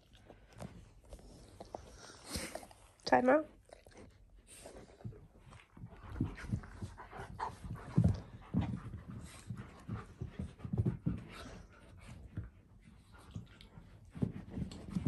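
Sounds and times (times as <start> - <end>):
dogs panting heavily: 4.0 - 15.0
dogs scuffling: 4.8 - 15.0.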